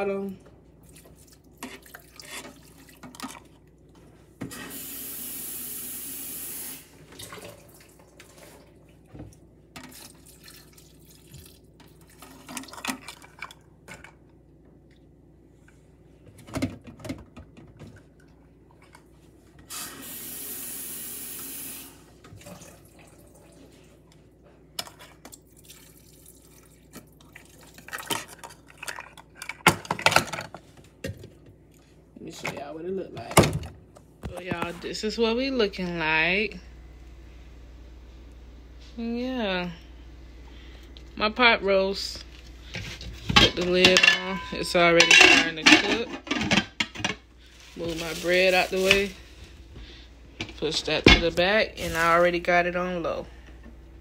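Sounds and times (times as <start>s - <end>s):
kitchen tap running: 4.5s - 8.7s, 19.6s - 23.6s
kitchen handling knocks and clatter: 42.8s - 47.2s.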